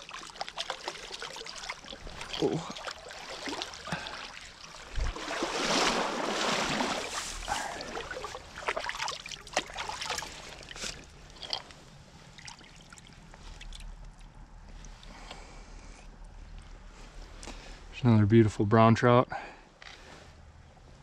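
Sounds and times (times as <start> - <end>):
water dripping: 0.0 - 5.5, 7.0 - 15.0
stream trickling: 0.0 - 15.1
water splashing and sloshing: 0.0 - 15.6.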